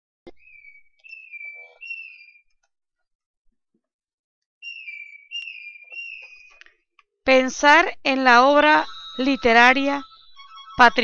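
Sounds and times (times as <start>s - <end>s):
high whistle-like tones: 0.5s - 2.4s, 4.6s - 6.6s, 8.1s - 11.0s.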